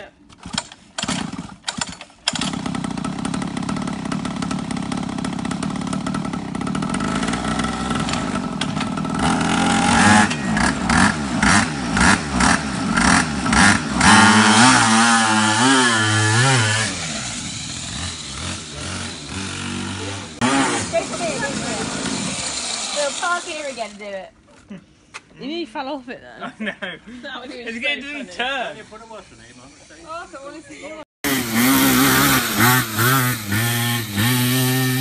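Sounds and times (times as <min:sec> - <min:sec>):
small motorbike engine starting and revving: 0:00.3 - 0:24.1, 0:31.2 - 0:35.0.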